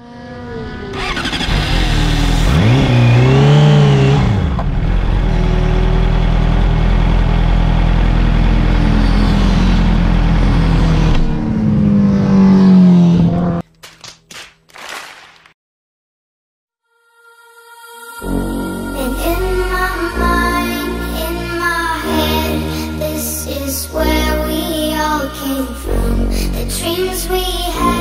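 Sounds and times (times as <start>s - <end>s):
motorcycle engine revving: 0.0s - 13.6s.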